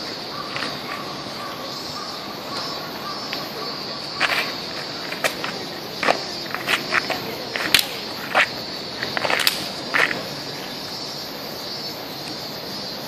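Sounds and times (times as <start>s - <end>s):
steady high hiss: 0.0s - 13.0s
sneakers on stone paving: 2.5s - 11.0s.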